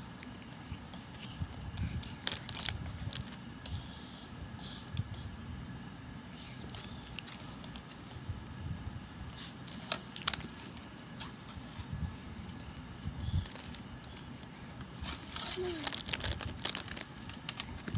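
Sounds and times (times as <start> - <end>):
low background hum: 0.0 - 17.9
plastic packets crinkling and tapping: 2.2 - 3.4, 9.7 - 10.9, 13.4 - 17.9.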